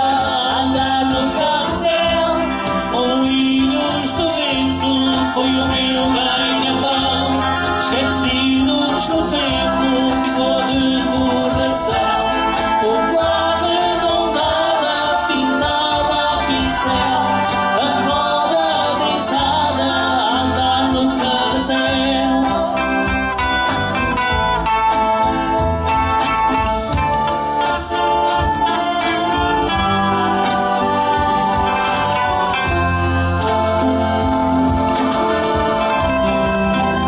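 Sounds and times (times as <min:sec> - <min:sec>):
male and female voices singing: 0:00.0 - 0:23.4, 0:28.1 - 0:32.7
accordion: 0:00.0 - 0:37.0
bass guitar: 0:00.0 - 0:37.0
box drum: 0:00.0 - 0:37.0
strummed acoustic guitars: 0:00.0 - 0:37.0.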